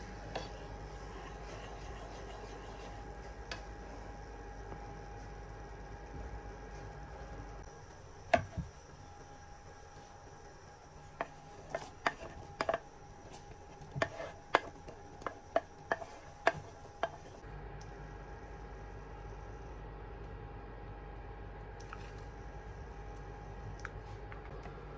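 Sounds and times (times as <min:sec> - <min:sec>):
wooden spoon on cutting board: 0:11.2 - 0:17.4.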